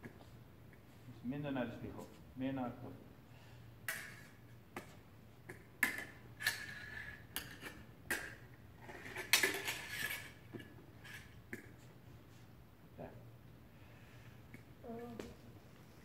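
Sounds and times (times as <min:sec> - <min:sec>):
fencing blades clashing: 0:03.8 - 0:04.9, 0:05.5 - 0:11.7.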